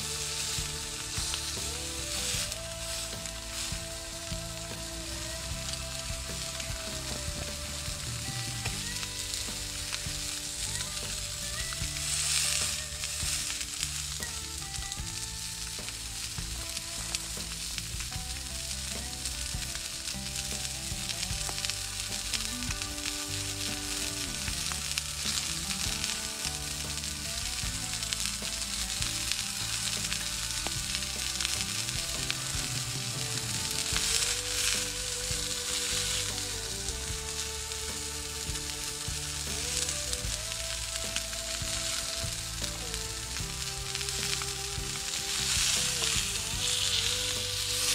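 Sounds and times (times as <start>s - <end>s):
burger patty sizzling: 0.0s - 47.9s
soft background music: 0.0s - 47.9s.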